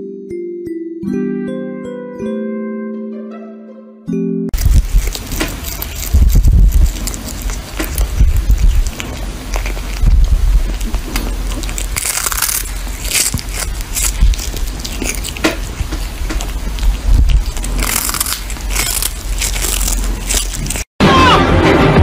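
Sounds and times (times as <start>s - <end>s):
kitten chewing fish: 4.6s - 20.9s.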